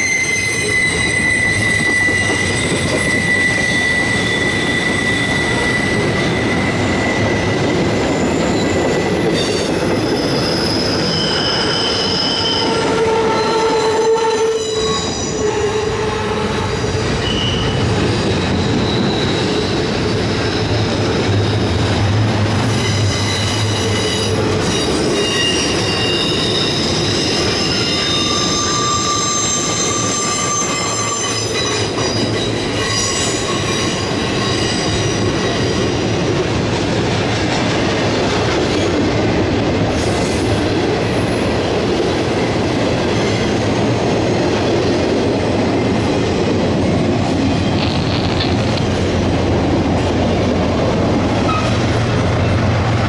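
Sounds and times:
steel wheels squealing: 0:00.0 - 0:36.2, 0:47.4 - 0:49.1, 0:51.4 - 0:52.7
train cars rumbling past: 0:00.0 - 0:53.0.

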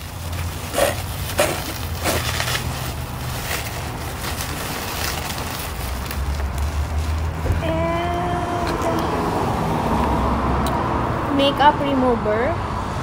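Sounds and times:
bubble wrap crinkling: 0:00.0 - 0:09.0.

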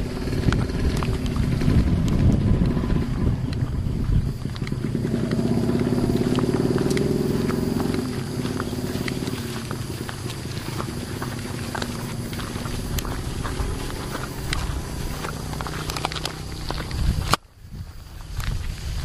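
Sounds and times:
scattered clicks: 0:00.0 - 0:03.7, 0:04.4 - 0:17.5
rough low rumble: 0:00.0 - 0:19.0.

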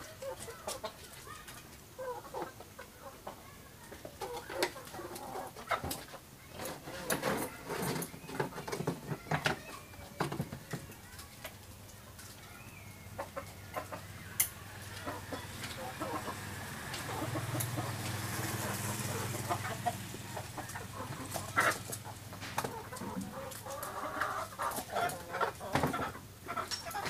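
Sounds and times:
animal calls: 0:12.4 - 0:27.0.

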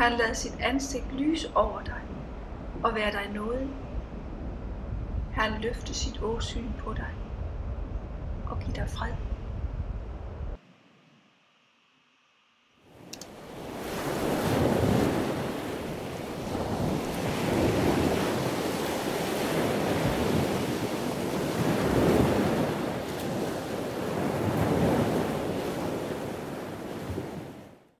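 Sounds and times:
sea waves washing on shore: 0:12.9 - 0:27.9.

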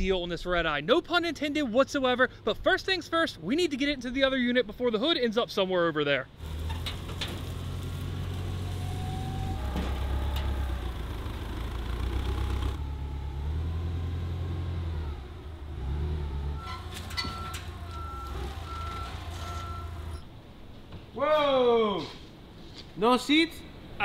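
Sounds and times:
forklift engine running: 0:06.4 - 0:20.4
reversing alarm beeping: 0:16.5 - 0:20.3.

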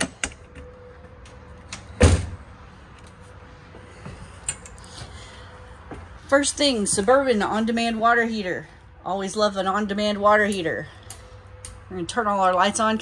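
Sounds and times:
loud dull door thump: 0:02.0 - 0:02.4.

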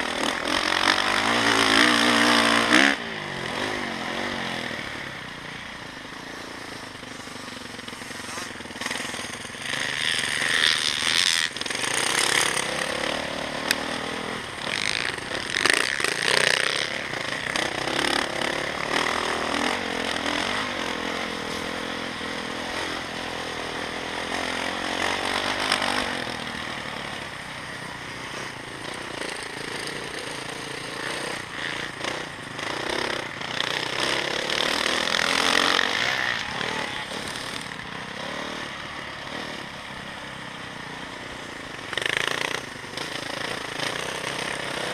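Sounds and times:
dirt bike engine revving: 0:00.0 - 0:44.9.

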